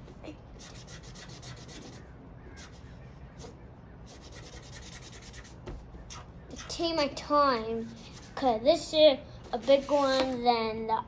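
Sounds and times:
marker scrubbing on paper: 0:00.6 - 0:06.8, 0:07.6 - 0:08.6.

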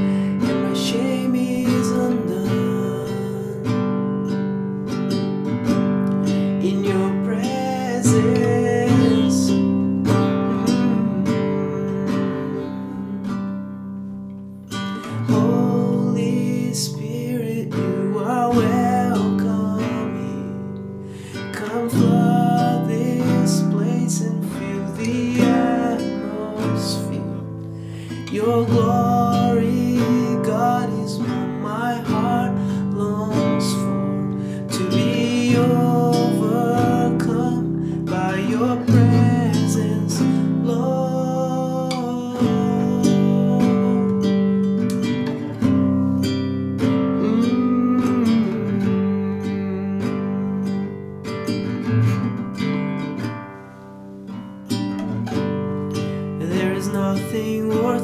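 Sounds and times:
man singing: 0:00.0 - 0:13.8, 0:14.7 - 0:53.2, 0:54.8 - 0:58.0
classical guitar strumming: 0:00.0 - 0:58.0.

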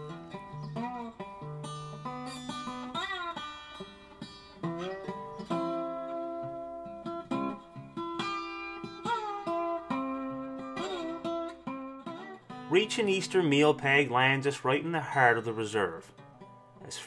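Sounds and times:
plucked guitar melody: 0:00.0 - 0:17.0.

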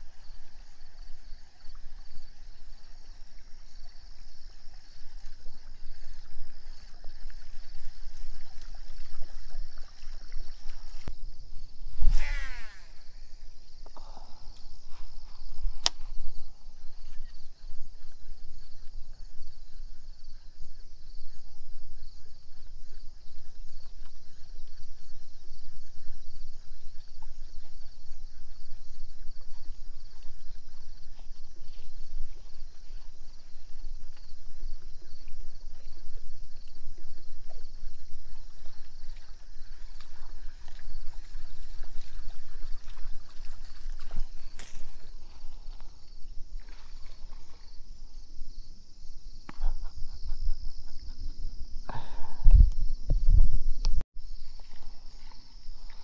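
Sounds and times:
insects chirping: 0:00.0 - 0:56.0
sharp click: 0:15.8 - 0:16.0.

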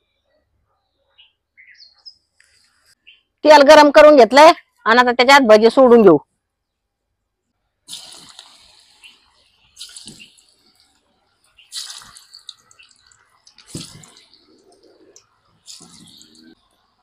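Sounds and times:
oil bubbling while deep-frying: 0:07.9 - 0:16.7.

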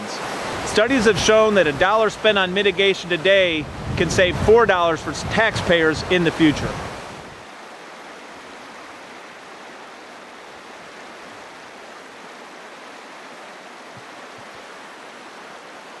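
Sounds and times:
water rushing: 0:00.0 - 0:16.0.

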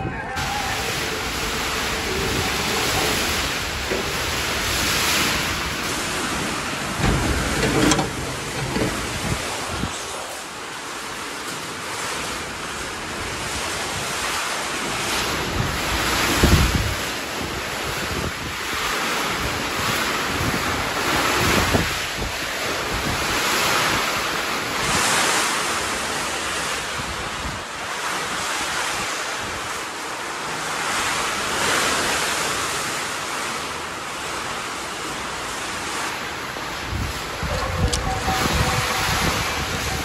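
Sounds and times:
steady rushing noise: 0:00.4 - 0:16.9.

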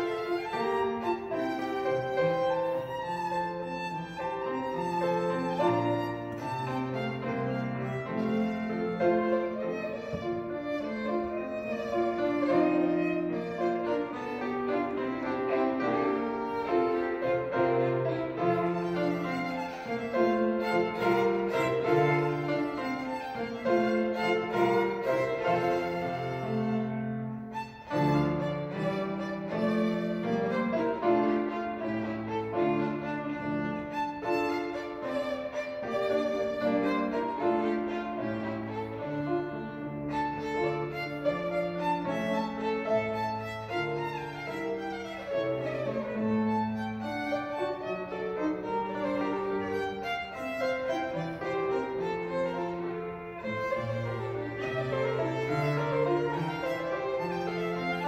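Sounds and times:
piano accompaniment: 0:00.0 - 0:58.0
violin melody: 0:00.0 - 0:58.0.

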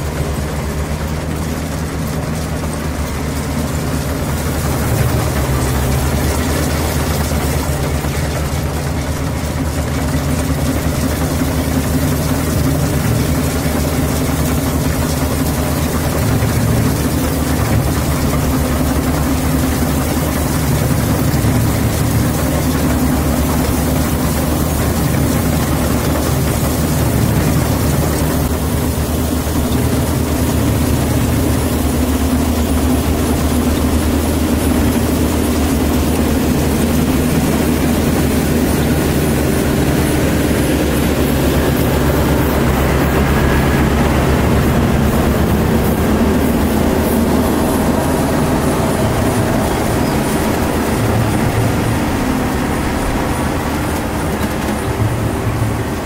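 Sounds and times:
combine harvester engine droning: 0:00.0 - 0:56.0
machinery noise: 0:00.0 - 0:56.0.

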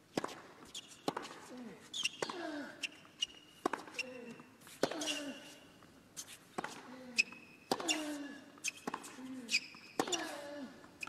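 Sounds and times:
tennis ball bouncing: 0:00.1 - 0:01.4, 0:03.6 - 0:04.0, 0:07.7 - 0:09.1
racket striking tennis ball: 0:03.6 - 0:04.0, 0:10.0 - 0:10.2.

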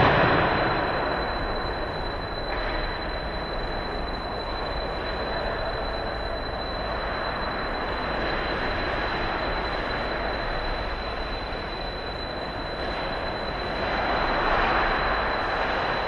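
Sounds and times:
constant high whine: 0:00.0 - 0:16.0.

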